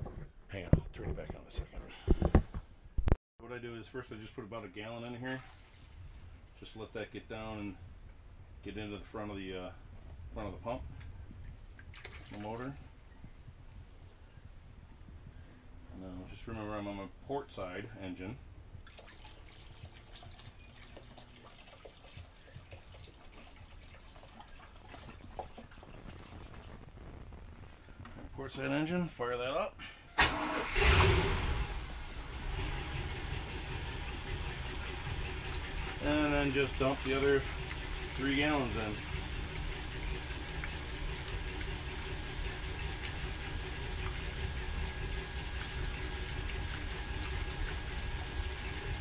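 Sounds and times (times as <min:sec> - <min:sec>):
liquid trickling into funnel: 0:11.8 - 0:12.8, 0:18.8 - 0:26.8
boat engine idling: 0:32.3 - 0:49.0.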